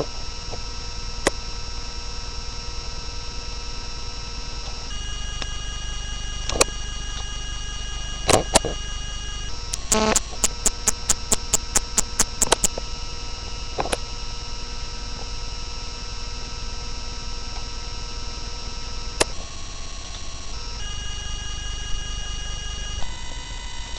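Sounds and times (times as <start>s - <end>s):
electrical hum: 0.0s - 23.9s
sharp clicks: 9.7s - 12.8s.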